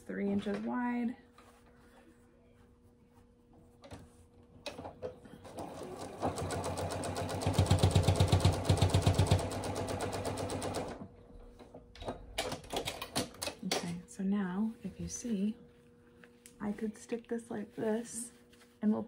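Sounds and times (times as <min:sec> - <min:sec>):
sewing machine stitching: 0:05.4 - 0:11.0.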